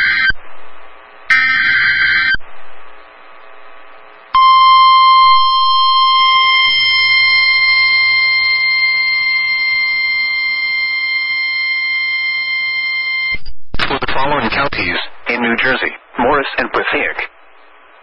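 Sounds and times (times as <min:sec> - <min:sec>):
steady warning alert tone: 0:04.4 - 0:13.4.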